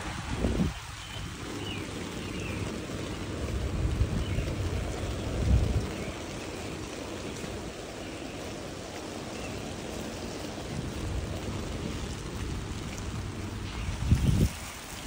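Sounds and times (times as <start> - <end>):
rain on wet pavement: 0.0 - 15.0.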